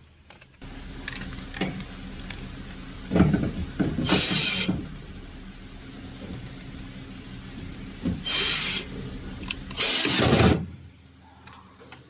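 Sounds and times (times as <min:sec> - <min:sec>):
cordless drill whirring: 0:04.0 - 0:04.7, 0:08.2 - 0:08.9, 0:09.7 - 0:10.5.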